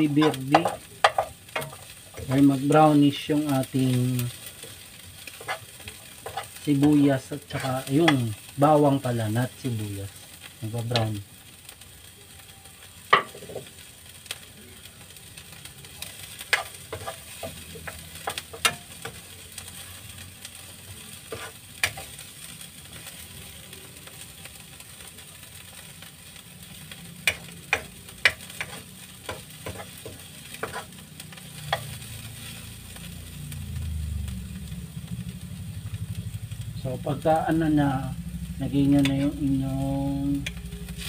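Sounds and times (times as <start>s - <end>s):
metal spatula scraping a pan: 0.0s - 8.5s, 16.1s - 22.3s, 27.2s - 32.7s
faint sizzle: 0.0s - 41.0s
low rumble: 32.1s - 41.0s.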